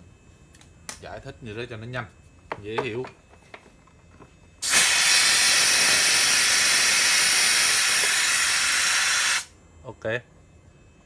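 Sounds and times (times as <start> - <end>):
compressed air hissing: 4.6 - 9.5.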